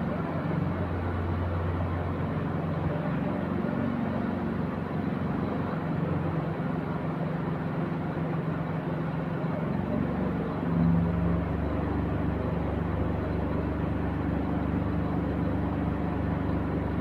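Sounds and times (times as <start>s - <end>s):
diesel engine of concrete pump: 0.0s - 17.0s.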